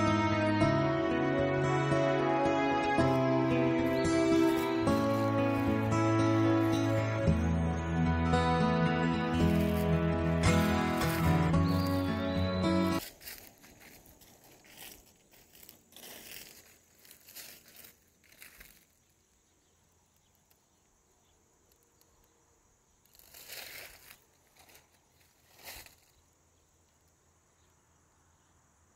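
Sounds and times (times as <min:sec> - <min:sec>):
guitar music: 0:00.0 - 0:13.0
high insect trill: 0:03.0 - 0:07.5, 0:20.0 - 0:28.8
rustling and crinkling: 0:04.3 - 0:05.9, 0:09.4 - 0:12.3, 0:13.0 - 0:19.5, 0:23.0 - 0:26.2.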